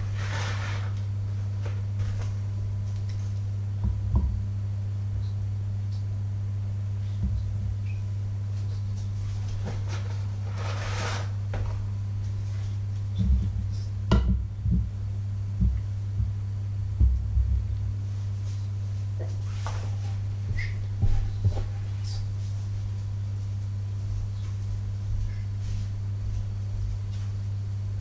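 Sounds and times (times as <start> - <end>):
low electrical hum: 0.0 - 28.0.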